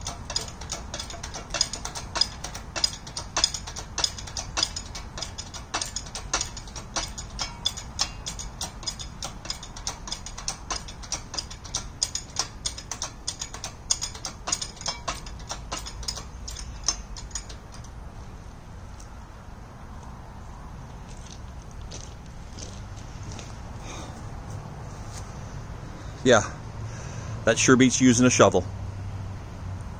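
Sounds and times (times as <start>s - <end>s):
hydraulic pump handle clicking: 0.0s - 18.0s.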